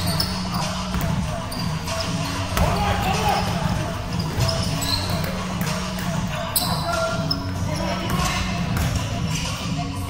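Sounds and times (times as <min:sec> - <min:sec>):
sneaker squeaks: 0:00.0 - 0:09.0
players' voices echoing: 0:00.0 - 0:09.6
basketball bouncing: 0:00.8 - 0:01.3, 0:08.1 - 0:09.1.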